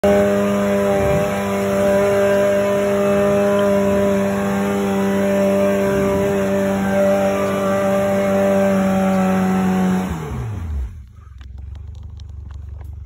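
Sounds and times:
buggy engine running: 0.0s - 13.0s.

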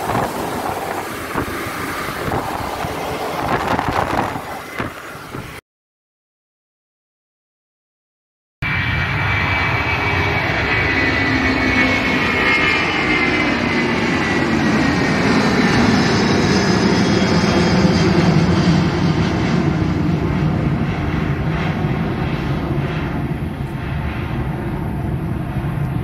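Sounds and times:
jet engines at full power: 0.0s - 5.6s, 8.6s - 26.0s
high engine whine falling in pitch: 8.6s - 19.2s.

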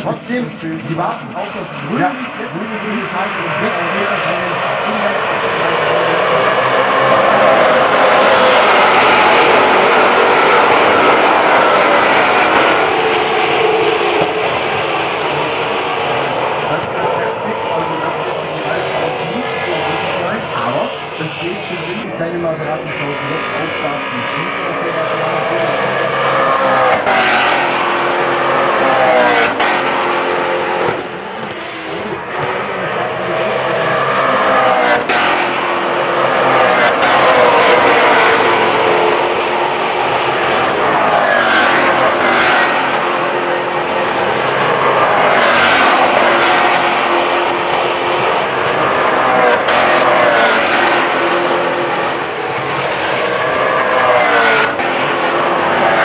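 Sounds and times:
race cars passing at speed: 0.0s - 56.0s.

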